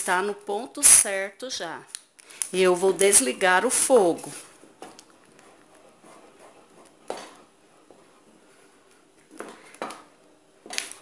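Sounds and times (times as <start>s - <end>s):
spoon stirring in metal pot: 4.6s - 8.8s.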